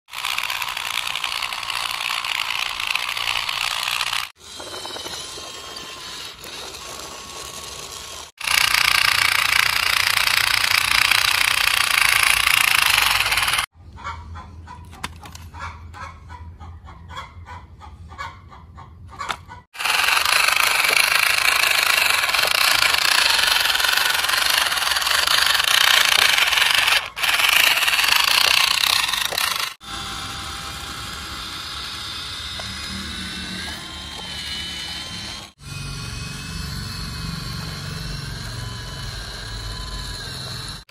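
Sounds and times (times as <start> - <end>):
toy motors buzzing rattle: 0.1 - 13.7, 19.7 - 40.9
rapid clicking: 8.4 - 13.7, 19.8 - 29.8.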